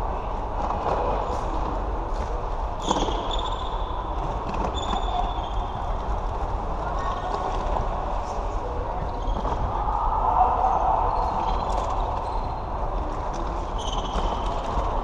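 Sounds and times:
shoes squeaking on floor: 13.7s - 14.9s.

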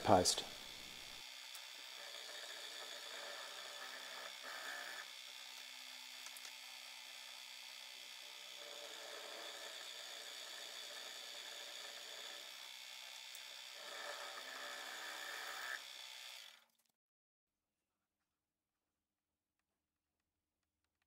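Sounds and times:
milling machine drilling metal: 0.0s - 16.6s.

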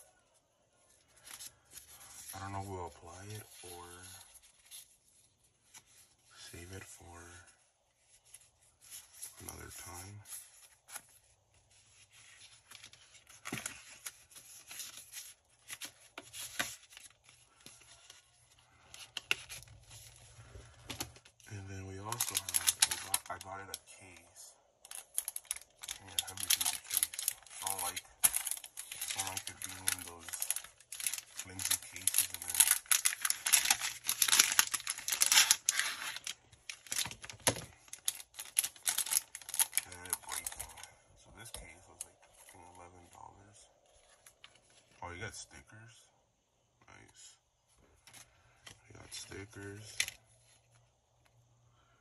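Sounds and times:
packaging rustling and crinkling: 8.0s - 23.7s, 24.8s - 42.7s.

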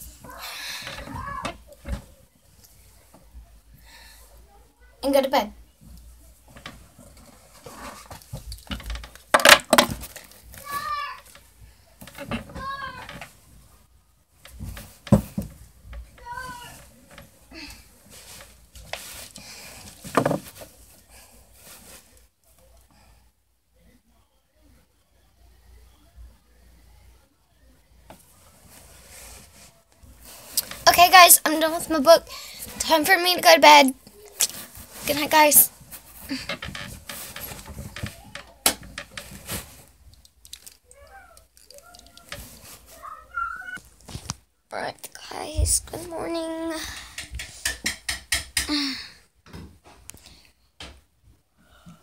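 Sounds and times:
bedding rustling: 0.0s - 3.6s, 5.7s - 22.2s, 28.2s - 40.1s, 42.1s - 44.4s
faint voice: 40.8s - 43.8s.

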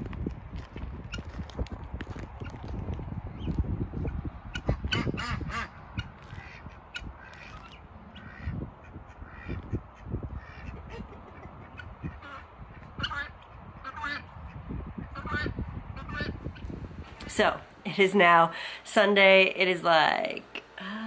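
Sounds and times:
low rumble: 0.0s - 17.3s
ducks quacking: 4.5s - 16.7s.

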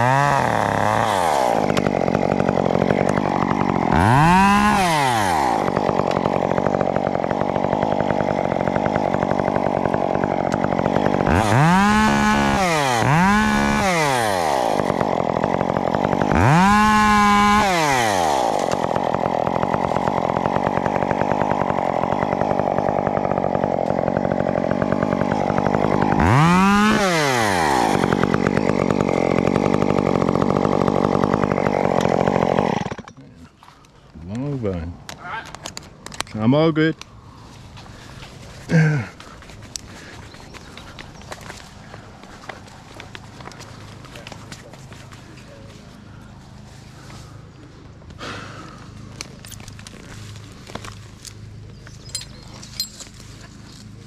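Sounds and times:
chainsaw idling and revving: 0.0s - 33.6s, 37.4s - 54.0s.

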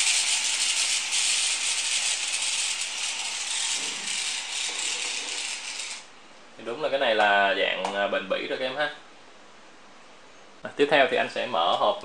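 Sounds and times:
spinning top rattling hiss: 0.0s - 6.1s.

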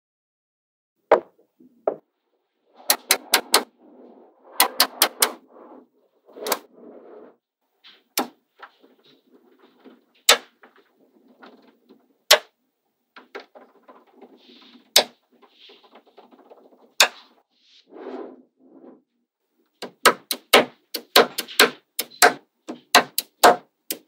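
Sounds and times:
balls rattling and rolling: 1.1s - 17.6s.

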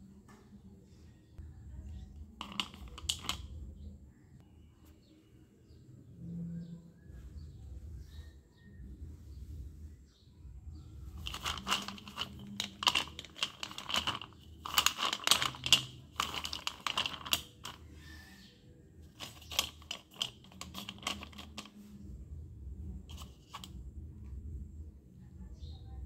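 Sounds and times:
pencils clattering in steel bowl: 2.4s - 3.4s, 11.2s - 17.8s, 19.1s - 21.7s, 23.1s - 23.7s.

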